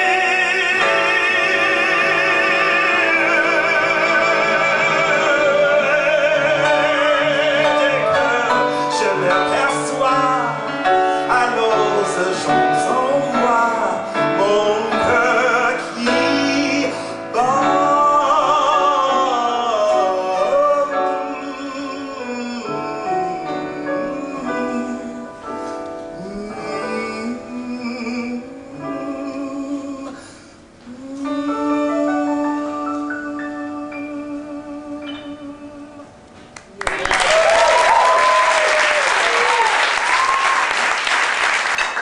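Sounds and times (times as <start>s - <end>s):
man singing with vibrato: 0.0s - 36.3s
small band with piano: 0.0s - 42.0s.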